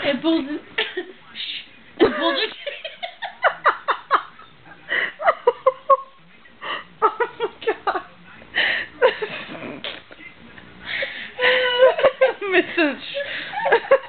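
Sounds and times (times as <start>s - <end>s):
woman laughing: 11.4s - 14.0s.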